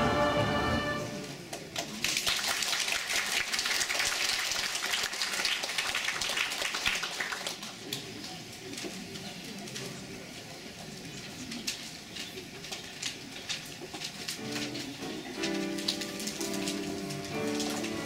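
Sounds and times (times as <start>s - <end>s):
audience applauding: 0.0s - 8.0s, 14.5s - 18.0s.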